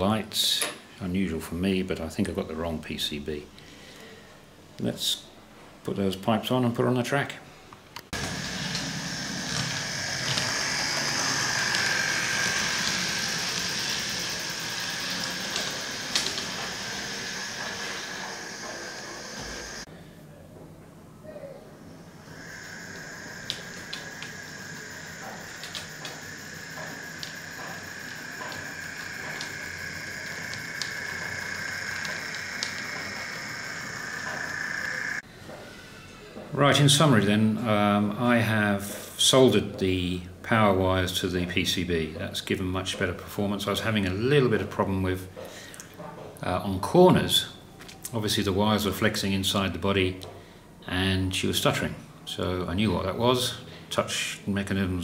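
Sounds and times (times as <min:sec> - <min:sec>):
wheels ticking on track: 0:08.2 - 0:19.8, 0:22.4 - 0:35.2
model train motor whine: 0:08.2 - 0:19.9, 0:22.0 - 0:35.2
wheels rumbling on track: 0:08.2 - 0:19.9.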